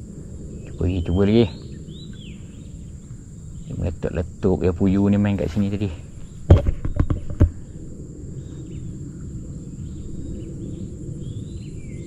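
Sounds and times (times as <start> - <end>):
low steady rumble: 0.0 - 6.6, 7.2 - 12.0
insects droning: 0.0 - 12.0
bird chirps: 0.5 - 4.0, 7.5 - 12.0
thump: 6.5 - 7.6.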